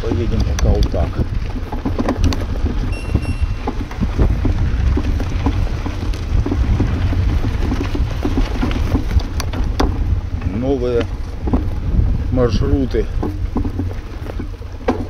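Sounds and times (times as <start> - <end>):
tyres crackling on grit: 0.0 - 15.0
wind buffeting microphone: 0.0 - 15.0
short high steady tone: 2.9 - 3.8.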